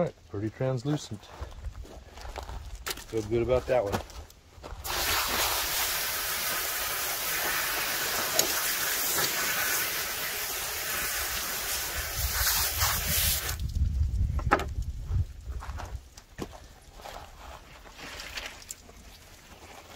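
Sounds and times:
hose nozzle spraying water: 4.8 - 13.6.

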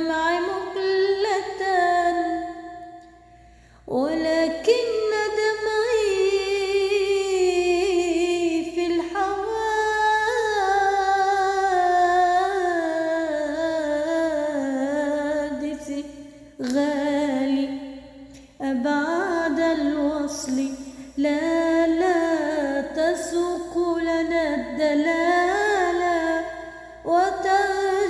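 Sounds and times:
solo voice singing melisma: 3.9 - 28.0.

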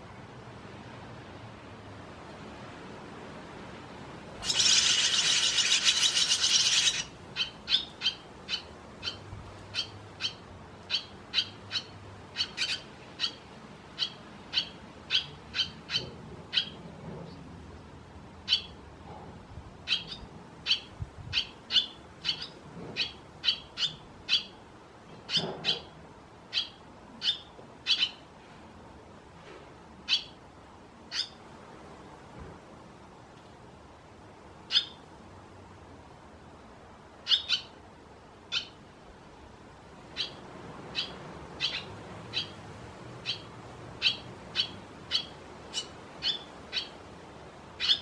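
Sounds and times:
swallows twittering: 4.4 - 9.2.

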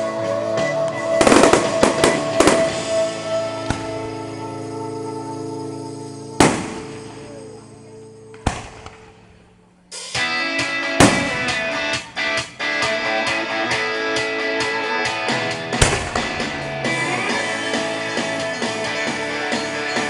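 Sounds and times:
guitar-led song: 0.0 - 8.4, 10.0 - 20.0
fireworks bangs: 1.1 - 4.4, 6.4 - 7.7, 8.3 - 9.6, 11.0 - 12.1, 15.6 - 18.7.

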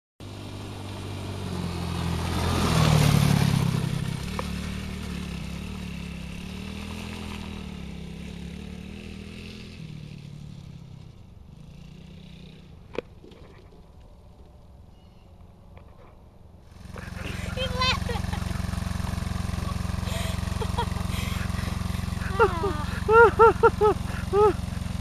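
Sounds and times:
small atv engine running: 0.2 - 15.2, 15.8 - 25.0
tyres on gravel: 0.3 - 7.8, 16.7 - 25.0.

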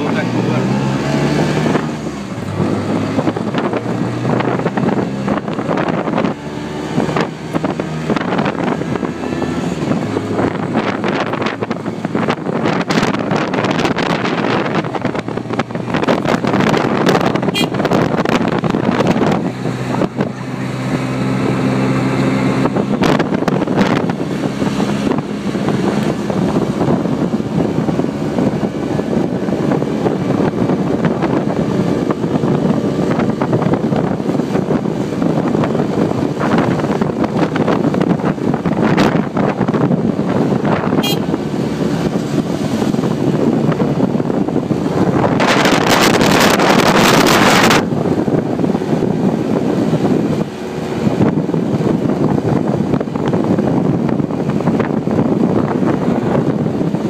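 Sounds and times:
road noise: 0.0 - 57.0
wind buffeting microphone: 0.0 - 57.0.

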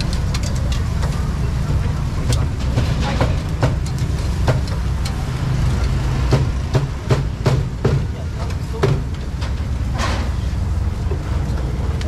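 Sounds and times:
metal tongs clinking: 0.0 - 1.4
low rumble of traffic: 0.0 - 12.0.

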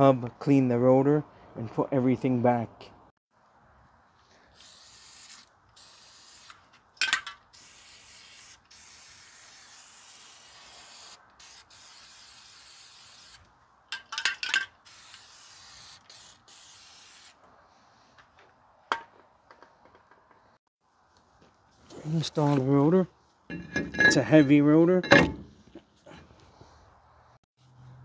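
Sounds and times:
aerosol can spraying: 4.6 - 6.7, 7.5 - 13.4, 14.8 - 17.4.

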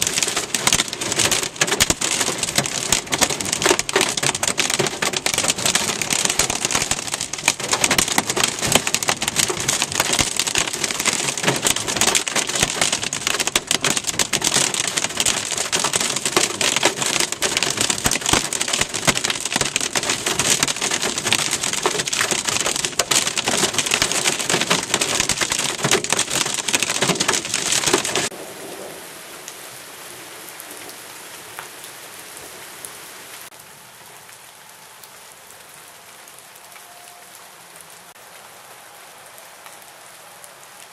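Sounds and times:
heavy rain on car windshield: 0.0 - 28.5.

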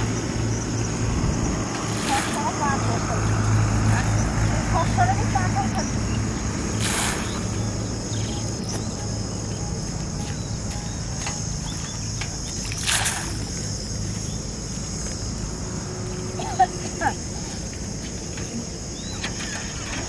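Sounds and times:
bait splashing into pond: 6.7 - 7.6, 12.6 - 13.6.

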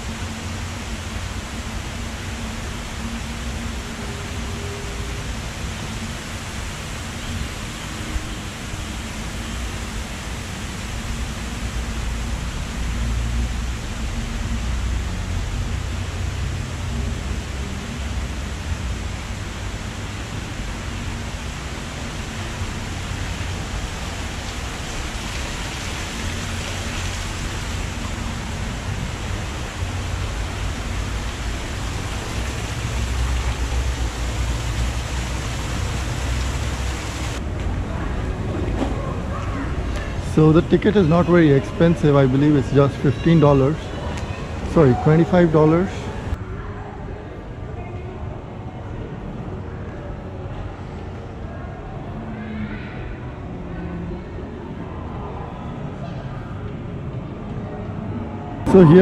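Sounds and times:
water falling over rocks: 17.1 - 37.4.

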